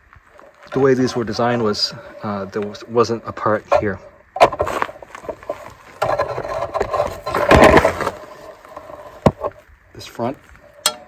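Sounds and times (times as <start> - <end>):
metal pin rattling and scraping: 3.7 - 9.6.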